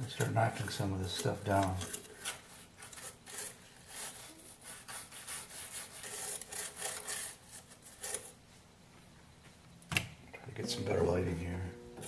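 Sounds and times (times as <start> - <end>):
brush scrubbing plastic: 0.0 - 8.4.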